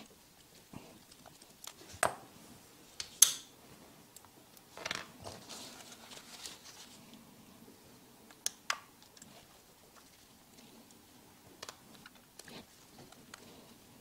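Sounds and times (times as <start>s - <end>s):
gloved hands rustling: 4.6s - 7.3s.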